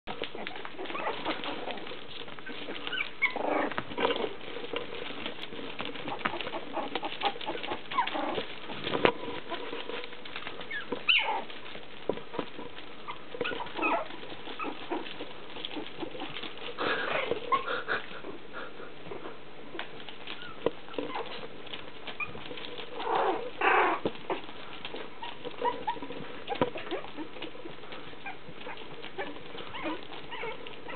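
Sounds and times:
puppies yipping and squeaking: 0.1s - 30.9s
puppy yelps: 0.3s - 1.6s, 2.4s - 4.2s, 6.0s - 8.4s, 10.7s - 11.5s, 13.0s - 15.1s, 16.8s - 18.0s, 28.2s - 30.9s.

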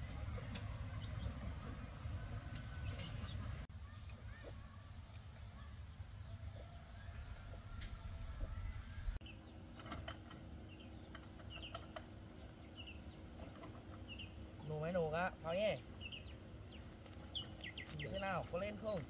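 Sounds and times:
faint bird chirps: 2.6s - 9.6s.

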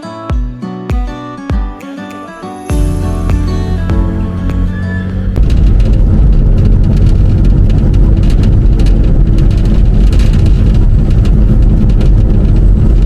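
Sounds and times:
car engine and road rumble: 2.7s - 13.0s
knocks and rattles: 5.3s - 13.0s.

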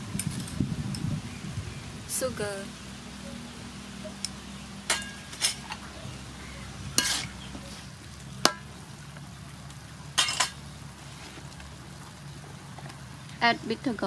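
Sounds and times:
frying sizzle: 0.0s - 14.0s
metal ladle clinking on wok: 7.0s - 7.3s, 10.2s - 10.6s.

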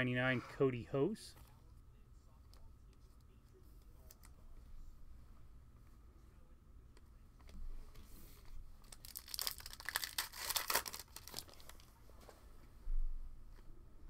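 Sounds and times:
foil pack tearing and rustling: 8.8s - 11.8s.

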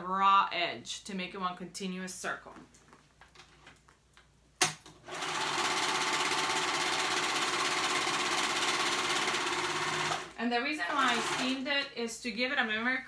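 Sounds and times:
serger sewing machine running: 5.1s - 11.6s.

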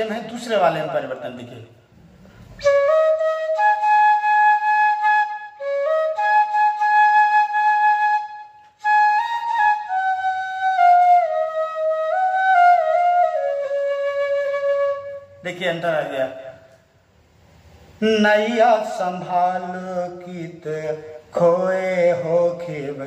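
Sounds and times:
bamboo flute melody: 2.5s - 15.4s.

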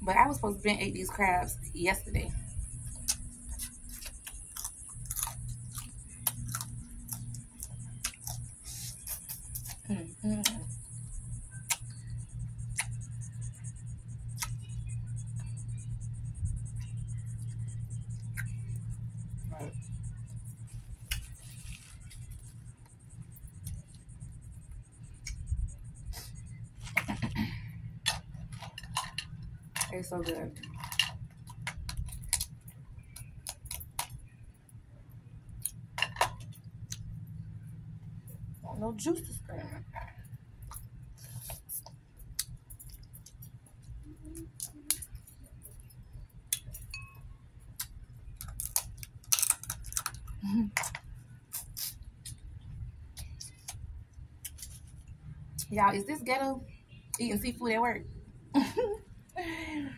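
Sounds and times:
eating noises: 0.0s - 34.2s, 39.2s - 46.9s, 47.7s - 56.0s
steady low hum: 0.0s - 59.9s
person chewing: 2.8s - 10.8s, 11.5s - 13.5s, 14.3s - 15.2s, 20.4s - 22.7s, 25.1s - 27.3s, 40.6s - 47.1s, 47.7s - 55.0s
crab shells cracking: 48.4s - 51.0s.

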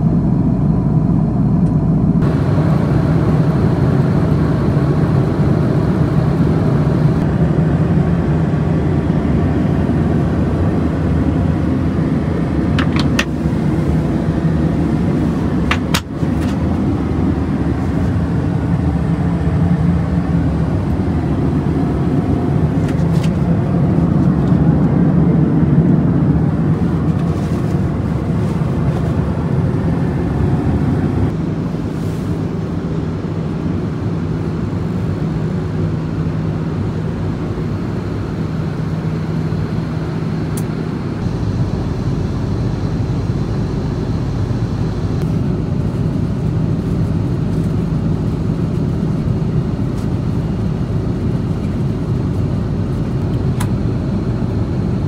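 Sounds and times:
jet engines humming: 0.0s - 55.0s
rushing air: 2.2s - 32.8s.

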